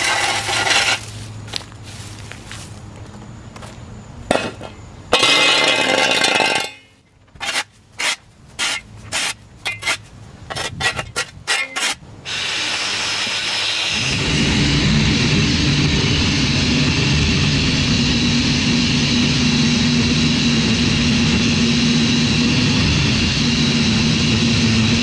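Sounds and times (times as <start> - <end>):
pole edger cutting lawn edge: 0.0 - 1.6, 7.4 - 25.0.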